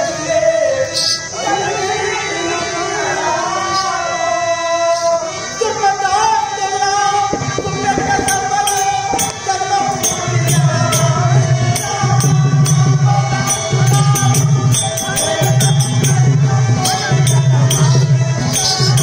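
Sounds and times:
drum steady beat: 7.3s - 19.0s
sharp jingling strikes: 7.4s - 11.2s, 11.8s - 19.0s
held melodic line: 7.4s - 19.0s.

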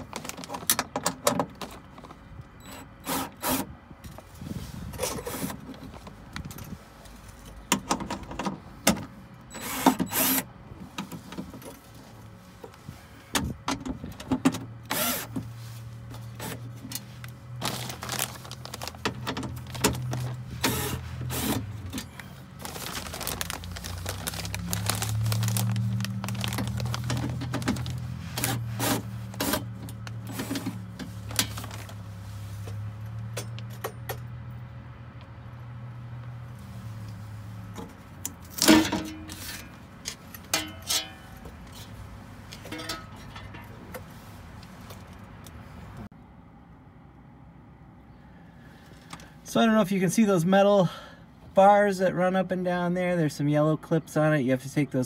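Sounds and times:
metal panel and bolts rattling: 42.6s - 43.8s.

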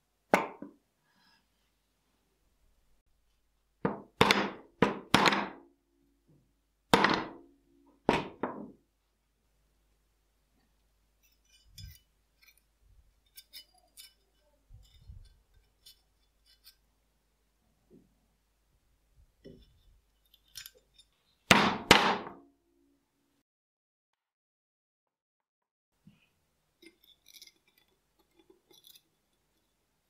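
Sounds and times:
small metal clicks and scrapes: 11.2s - 16.9s, 19.6s - 21.3s, 26.8s - 29.8s.

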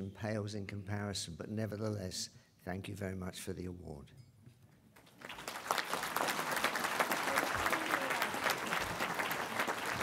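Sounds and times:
audience applause: 5.1s - 10.0s.

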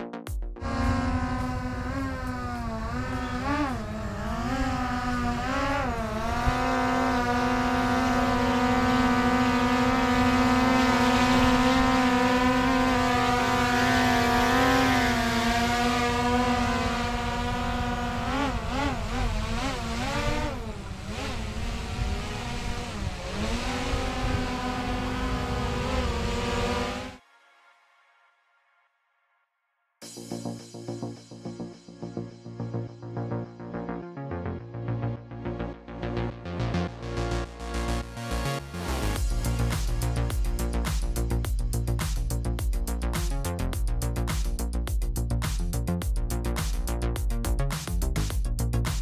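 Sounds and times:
drone propellers whining: 0.6s - 27.2s.

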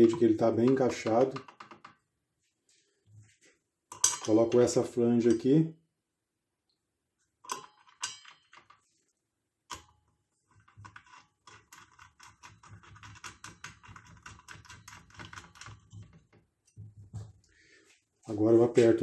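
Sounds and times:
bolt threading ticks and scrapes: 0.0s - 2.0s, 9.7s - 16.8s.

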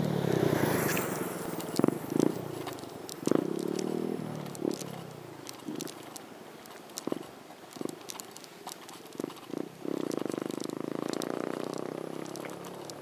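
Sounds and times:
scattered clicks and knocks: 1.6s - 13.0s
small engine pulsing buzz: 7.0s - 13.0s.

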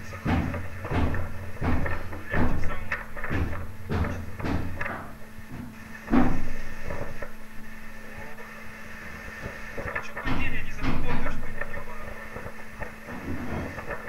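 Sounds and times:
heavy bangs and knocks: 0.0s - 7.2s, 9.8s - 11.9s.

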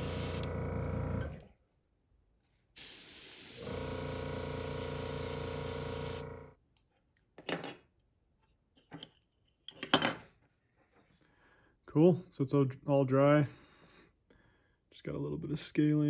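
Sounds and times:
airbrush spraying hiss: 0.0s - 0.4s, 2.8s - 6.2s
motor hum: 0.0s - 1.4s, 3.6s - 6.5s.

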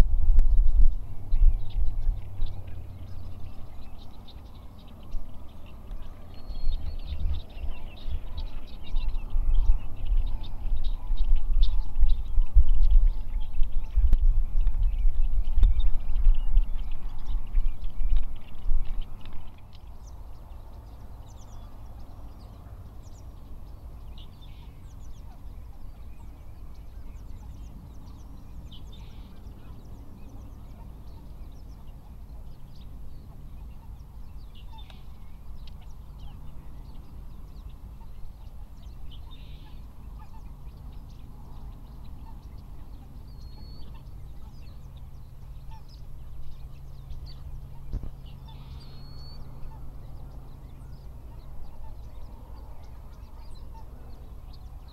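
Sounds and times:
steady low hum: 0.0s - 54.9s
geese calling: 37.8s - 40.7s, 47.3s - 54.7s.

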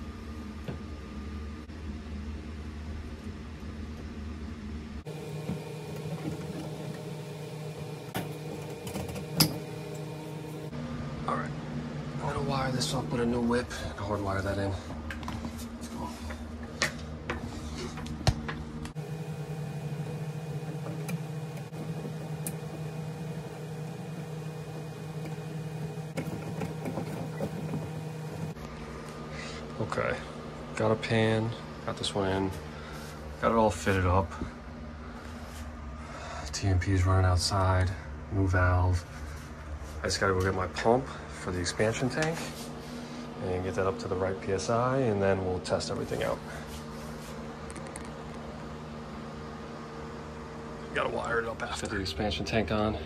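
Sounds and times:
steady mechanical hum: 0.0s - 53.0s.

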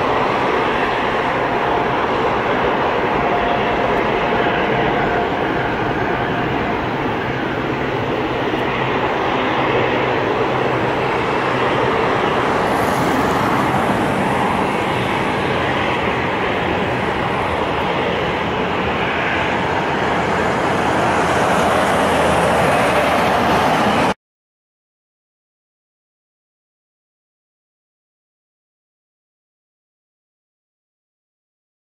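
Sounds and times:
jet engine roar: 0.0s - 24.2s.

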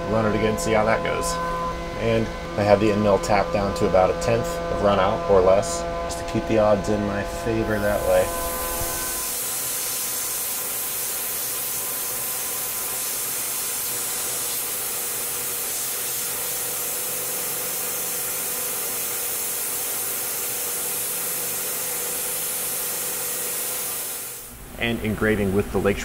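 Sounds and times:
milling machine cutting steel: 6.1s - 24.5s
coolant spray hiss: 7.8s - 24.5s.

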